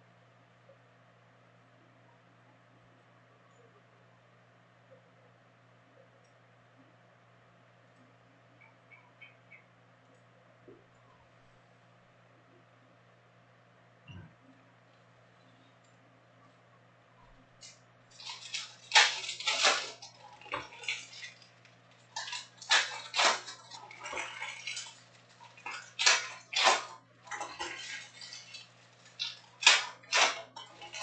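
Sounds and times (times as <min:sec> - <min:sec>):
faint steady hum: 0:00.0 - 0:31.0
card pack wrappers crinkling: 0:17.6 - 0:31.0.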